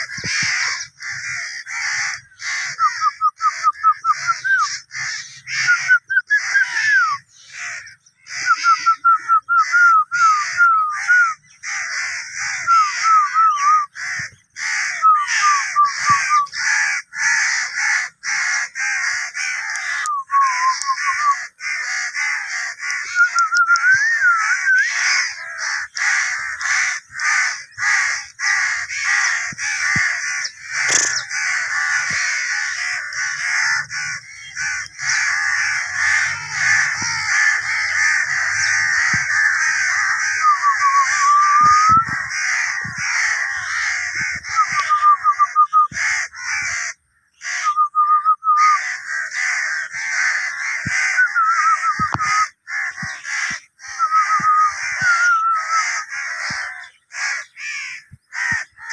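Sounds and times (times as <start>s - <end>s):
flock of birds calling: 0.0s - 58.9s
whistled bird glides: 22.9s - 28.0s, 29.0s - 46.0s, 50.8s - 56.0s.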